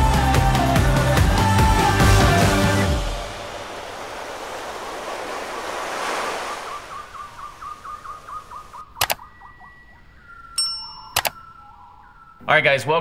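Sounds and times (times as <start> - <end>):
rush of noise: 1.9 - 8.5
sharp clicks: 8.8 - 9.3, 11.0 - 11.5.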